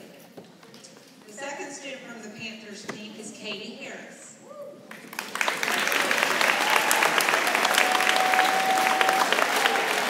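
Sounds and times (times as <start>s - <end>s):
audience applauding: 4.9s - 10.0s.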